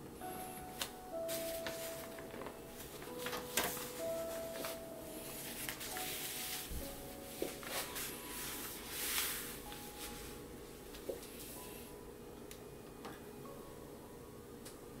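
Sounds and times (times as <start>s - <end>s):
paper rustling and crackling: 0.8s - 10.2s.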